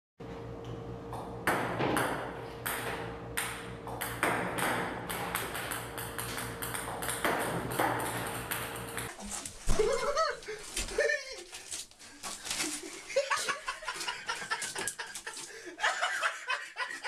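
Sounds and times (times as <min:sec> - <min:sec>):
steady low hum: 0:00.2 - 0:13.9
ping-pong balls bouncing on table: 0:01.2 - 0:09.1.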